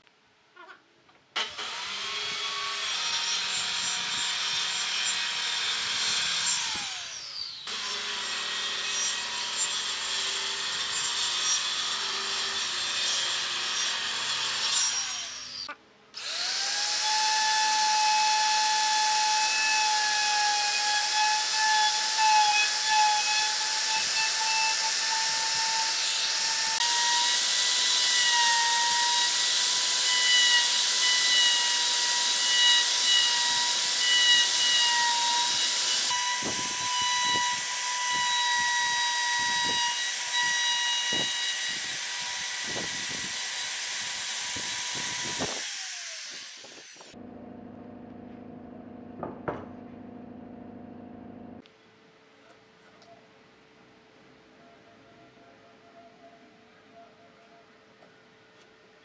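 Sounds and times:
plunge router whining: 1.4s - 9.5s, 16.2s - 48.1s
circular saw cutting wood: 1.4s - 47.2s.

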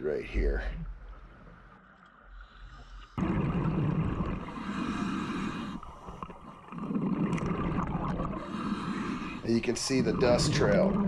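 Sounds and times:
diver breathing through regulator: 4.4s - 6.4s, 8.3s - 10.4s.

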